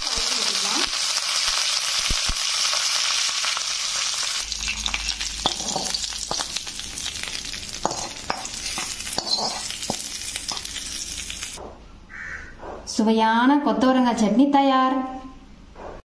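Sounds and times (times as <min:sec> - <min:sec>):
spices sizzling in hot oil: 0:00.0 - 0:11.6
spoon scraping a pan: 0:04.6 - 0:07.1, 0:07.7 - 0:11.6.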